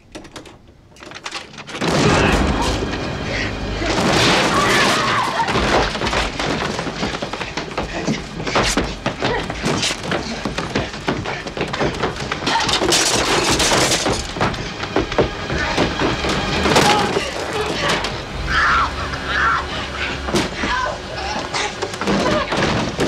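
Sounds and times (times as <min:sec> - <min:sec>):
something breaking: 0:01.5 - 0:06.6
strained cries: 0:01.9 - 0:06.1, 0:14.6 - 0:23.0.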